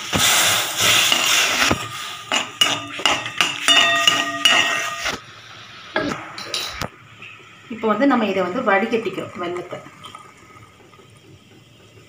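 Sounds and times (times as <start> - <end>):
bubbling syrup hiss: 0.0 - 2.7, 7.0 - 12.0
spatula scraping a steel pan: 0.8 - 5.2.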